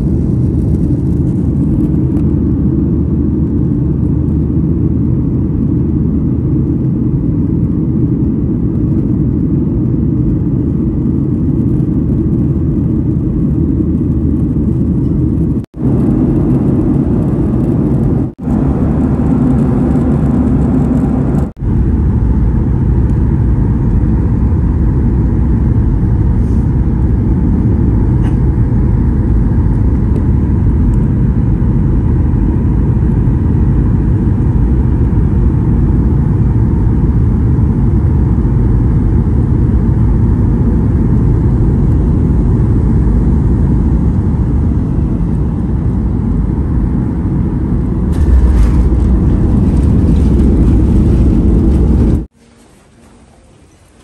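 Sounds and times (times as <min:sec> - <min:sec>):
jet airliner cabin rumble: 0:00.0 - 0:54.0.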